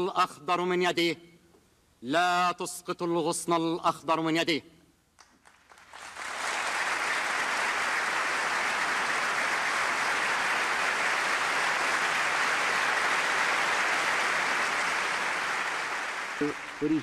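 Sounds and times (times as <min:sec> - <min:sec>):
audience applauding: 0:05.2 - 0:17.0.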